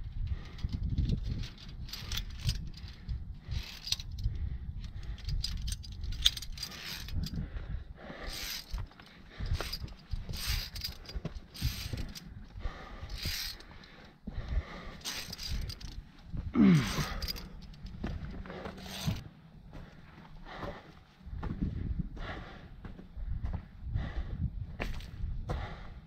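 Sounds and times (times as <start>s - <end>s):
metal climbing gear clinking: 0.0s - 19.3s
low rumble: 0.0s - 25.8s.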